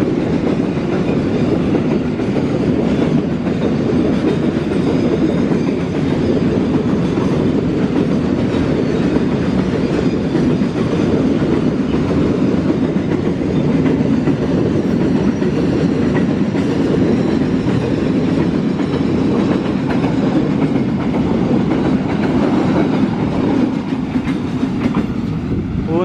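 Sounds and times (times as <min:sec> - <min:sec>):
clickety-clack over rail joints: 0:00.0 - 0:26.0
train wheels rumbling on rail: 0:00.0 - 0:26.0.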